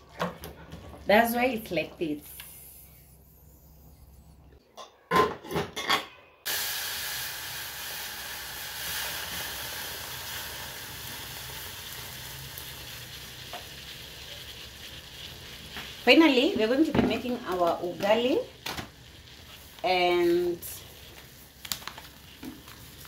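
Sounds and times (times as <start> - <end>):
water pouring into saucepan: 6.5 - 13.3.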